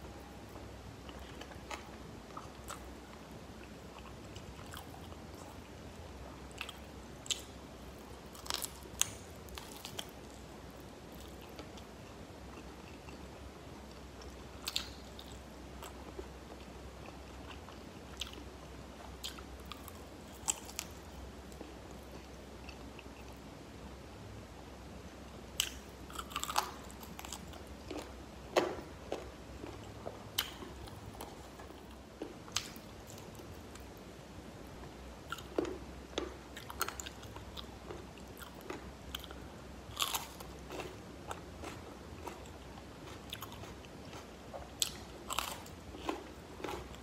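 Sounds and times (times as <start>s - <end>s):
faint low hum: 0.0s - 47.0s
biting and chewing crispy chicken: 25.6s - 33.4s, 36.6s - 47.0s.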